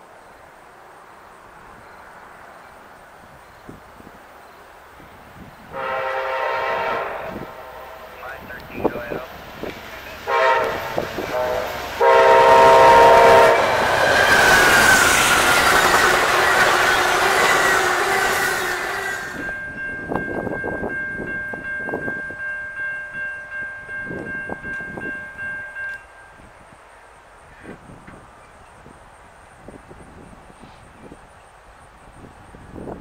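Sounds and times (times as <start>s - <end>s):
train rushing past: 0.0s - 33.0s
locomotive air horn chord: 5.7s - 9.3s, 10.0s - 19.6s
rail-joint clicks: 8.3s - 12.0s, 23.2s - 26.4s, 27.5s - 28.8s
high wheel squeal: 8.9s - 19.6s.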